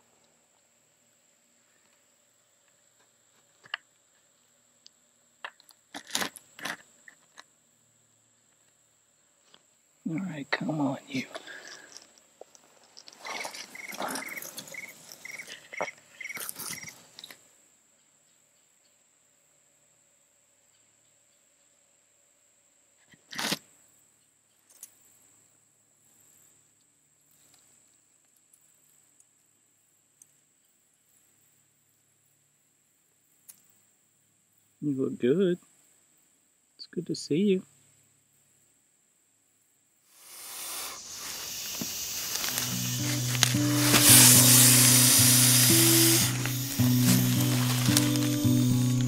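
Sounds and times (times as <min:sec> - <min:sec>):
insect drone: 0:00.0 - 0:49.0
scrapes on plywood floor: 0:40.2 - 0:48.4.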